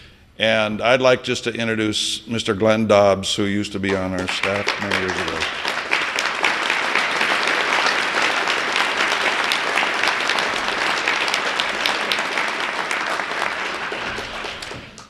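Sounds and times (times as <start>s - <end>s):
audience applauding: 3.8s - 15.0s.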